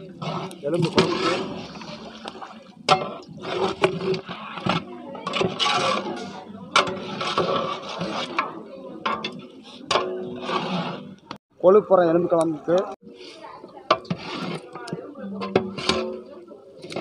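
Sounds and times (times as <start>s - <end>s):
metal spatula scraping a pot: 0.1s - 2.3s, 2.9s - 11.2s, 13.2s - 17.0s.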